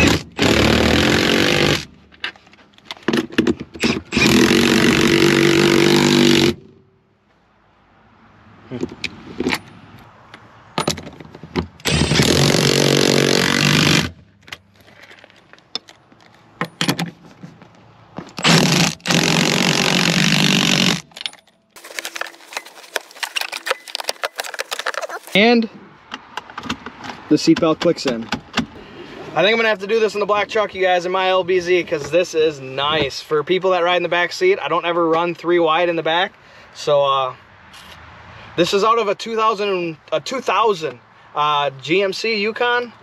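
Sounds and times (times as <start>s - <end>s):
metal clicks and scrapes: 18.3s - 25.4s
cordless power tool running: 18.5s - 21.0s.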